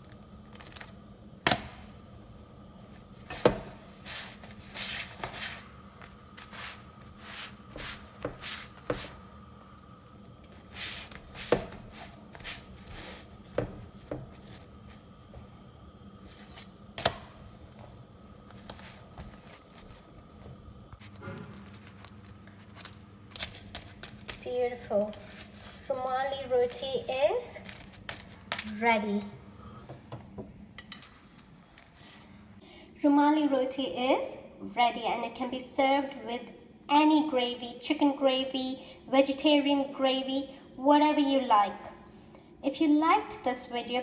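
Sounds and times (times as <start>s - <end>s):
steady low hum: 0.0s - 44.0s
cloth swishing on bread: 3.3s - 9.2s, 10.6s - 15.1s, 18.5s - 20.2s.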